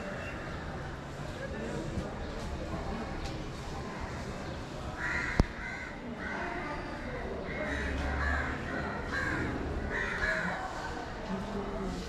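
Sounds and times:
crows cawing: 0:05.0 - 0:06.6, 0:07.5 - 0:10.7.

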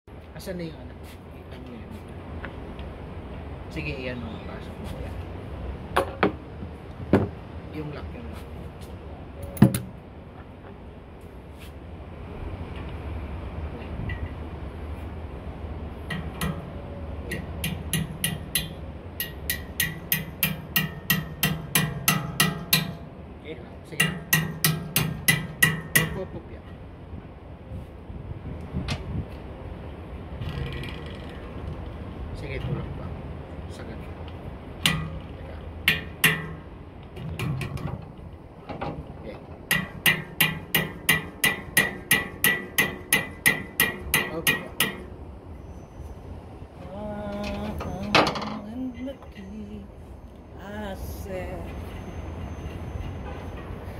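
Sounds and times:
hammer tapping on metal: 0:16.1 - 0:16.7, 0:17.3 - 0:23.1, 0:24.0 - 0:26.3, 0:34.8 - 0:35.3, 0:35.9 - 0:38.1, 0:39.6 - 0:45.1.

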